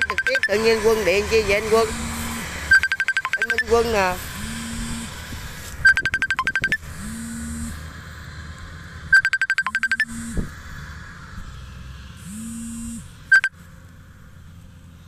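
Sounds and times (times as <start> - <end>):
rapid electronic ringtone beeps: 0.0 - 1.0, 2.7 - 4.0, 5.8 - 6.9, 9.1 - 10.4, 13.3 - 13.5
phone vibration buzzing: 1.8 - 7.8, 9.1 - 10.5, 12.2 - 13.5.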